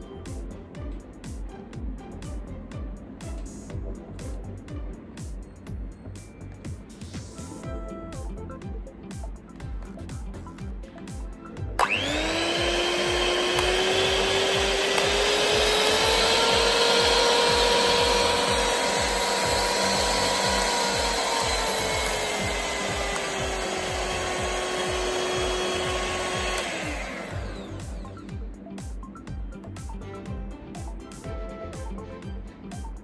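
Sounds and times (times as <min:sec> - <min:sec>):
faint background music with beat: 0:00.0 - 0:33.0
hand mixer motor whine: 0:11.8 - 0:28.4.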